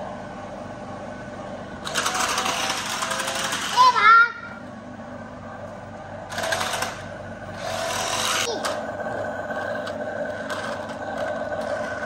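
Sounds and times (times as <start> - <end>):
toy car motors whirring: 1.8 - 4.0, 6.3 - 8.8, 9.8 - 12.0.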